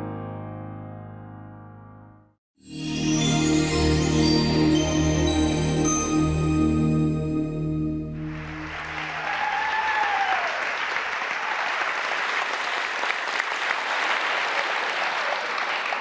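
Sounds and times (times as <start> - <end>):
soft musical intro: 2.6 - 9.4
audience applauding: 8.2 - 16.0
audience cheer: 8.3 - 16.0.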